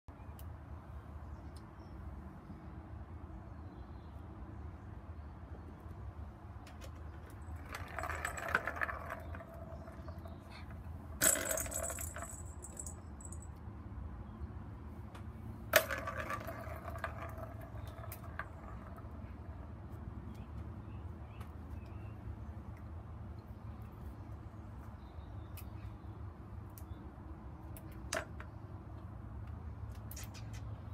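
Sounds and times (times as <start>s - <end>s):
cat toys jingling and clattering: 7.2s - 13.5s.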